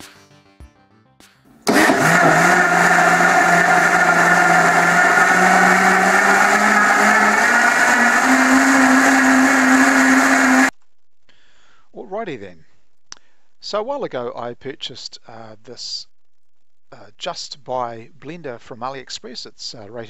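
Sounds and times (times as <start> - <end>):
blender motor running: 1.7 - 10.7.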